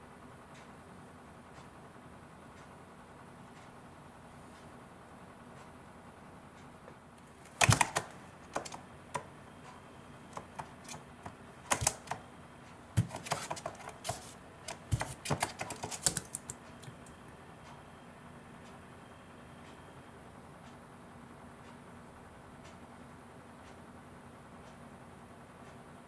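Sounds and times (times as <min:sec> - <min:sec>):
bird beak tapping cardboard: 0:07.4 - 0:09.3, 0:10.3 - 0:12.2, 0:13.0 - 0:17.1.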